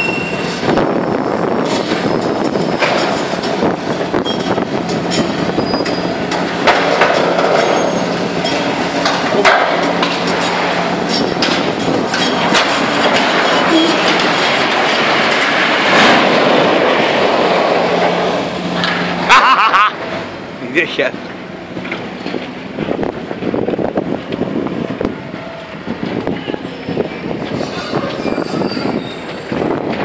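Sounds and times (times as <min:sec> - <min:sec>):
excavator engine humming: 0:00.0 - 0:28.2
sheet metal roof crashing down: 0:08.6 - 0:18.3.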